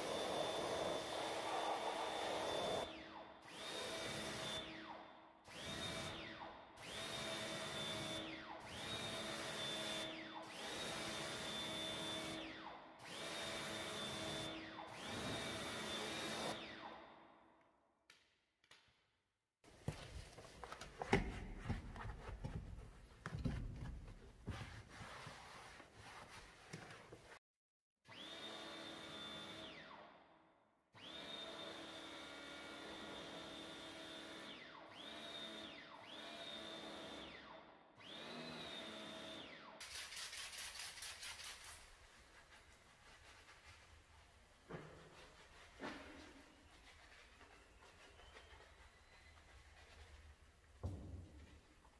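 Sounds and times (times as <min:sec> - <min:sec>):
pressure washer motor whine: 0:00.0 - 0:03.0.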